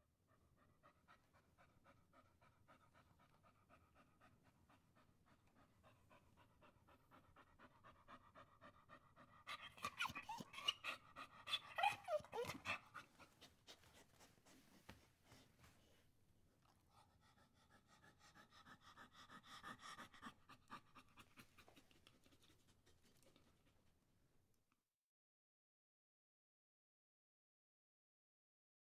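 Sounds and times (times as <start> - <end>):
dog panting: 0.2 - 24.0
dog whining: 9.5 - 13.4.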